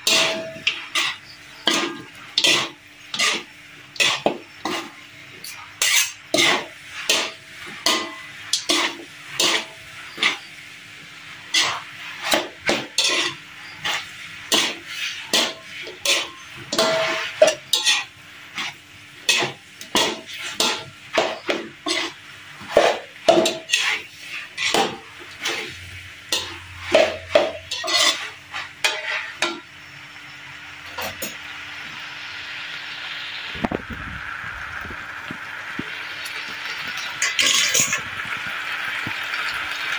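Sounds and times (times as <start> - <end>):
metal spatulas scraping a wok: 0.0 - 29.7, 37.0 - 38.1
frying sizzle: 0.0 - 39.9.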